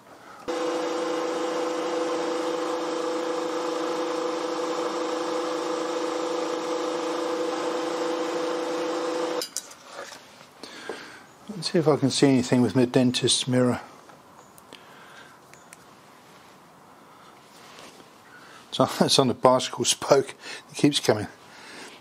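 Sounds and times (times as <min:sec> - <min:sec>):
milling machine spindle humming: 0:00.4 - 0:09.4.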